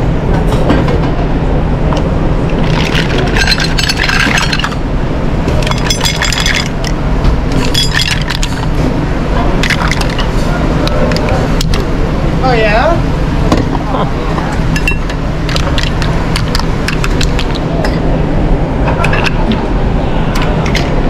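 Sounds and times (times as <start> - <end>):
steady low hum: 0.0 - 21.0
mussel shells clattering onto plates: 2.6 - 4.8, 5.6 - 6.9.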